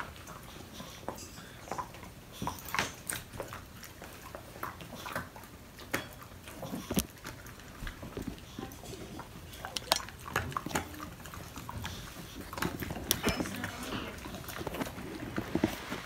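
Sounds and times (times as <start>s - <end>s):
dogs chewing crunchy treats: 0.0s - 16.0s
sharp crack of chew: 8.6s - 13.4s.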